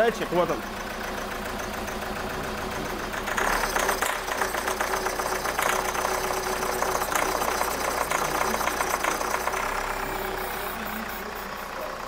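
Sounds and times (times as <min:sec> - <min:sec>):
diesel engine idling roughly: 0:00.0 - 0:12.0.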